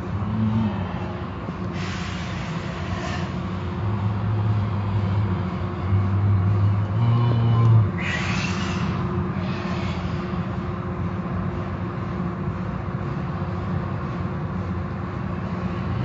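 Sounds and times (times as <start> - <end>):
car wash machinery humming: 0.0 - 16.0
hiss rushes: 1.7 - 3.4.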